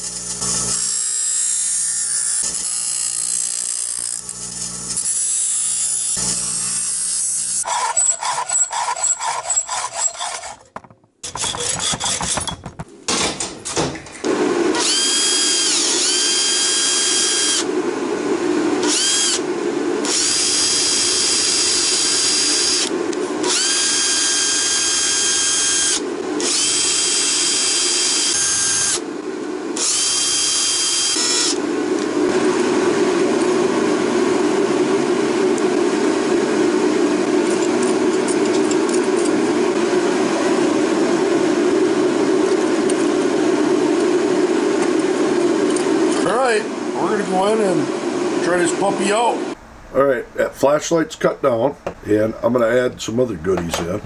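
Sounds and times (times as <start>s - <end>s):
rough power tool sound: 0.0s - 12.4s, 14.7s - 17.7s, 18.8s - 29.1s, 29.8s - 31.6s
power drill whining: 5.9s - 12.5s, 14.8s - 17.7s, 18.8s - 19.4s, 20.0s - 29.0s, 29.8s - 31.6s
hacksaw cutting steel rod: 6.9s - 12.4s.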